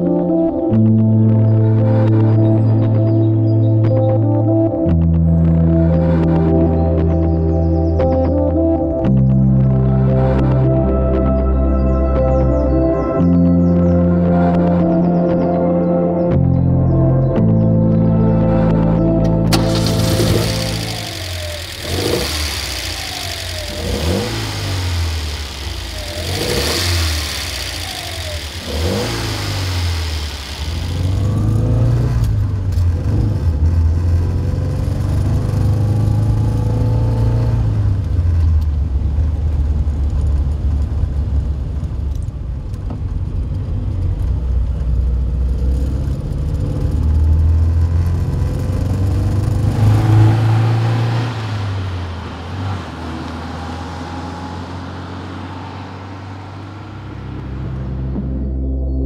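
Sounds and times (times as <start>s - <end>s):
car engine running on road: 0.0s - 15.4s, 16.3s - 59.0s
car engine revving: 18.2s - 59.0s
engine intake hiss: 19.6s - 31.4s.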